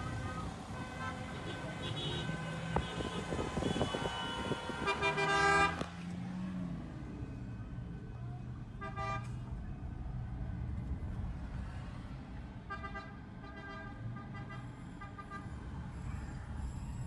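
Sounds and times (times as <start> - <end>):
car horns honking: 0.0 - 5.9, 8.8 - 9.4
low traffic rumble: 0.0 - 17.0.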